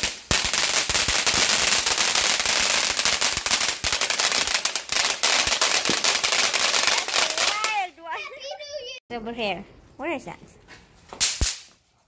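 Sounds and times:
firework hissing and crackling: 0:00.0 - 0:07.9.

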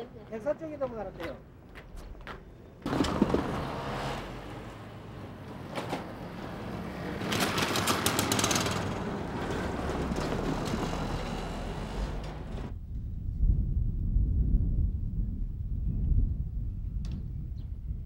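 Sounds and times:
small motorcycle engine passing: 0:02.8 - 0:12.7.

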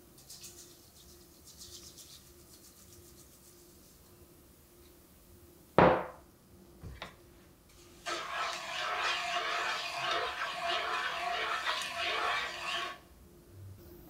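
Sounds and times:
glass bowl knocking on table: 0:05.8 - 0:06.2
spatula scraping frying pan: 0:08.0 - 0:13.0.

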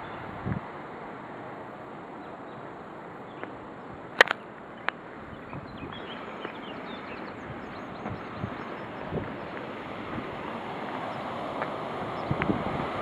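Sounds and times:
outdoor background hiss: 0:00.0 - 0:13.0
bird chirps: 0:04.3 - 0:09.6.

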